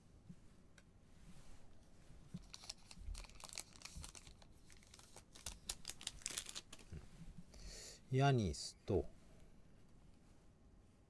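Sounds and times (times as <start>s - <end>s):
foil wrapper tearing and crinkling: 2.4s - 6.9s.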